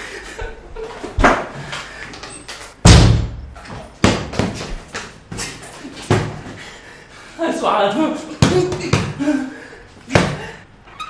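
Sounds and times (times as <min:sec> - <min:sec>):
heavy slam: 0:02.8 - 0:04.4
sharp knocks and thuds: 0:02.8 - 0:04.8.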